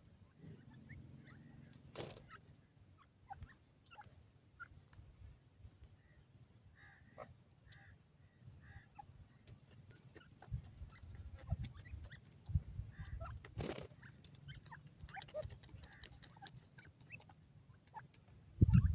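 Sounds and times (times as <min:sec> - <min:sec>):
birds clucking softly: 0:00.0 - 0:18.9
pecking and scratching ticks: 0:01.6 - 0:05.2, 0:09.0 - 0:18.9.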